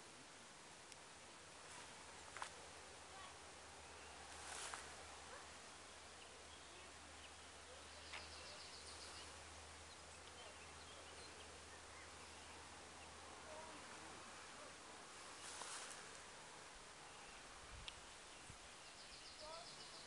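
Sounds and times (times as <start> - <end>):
faint bird chirps: 3.2 - 13.8, 17.0 - 20.0.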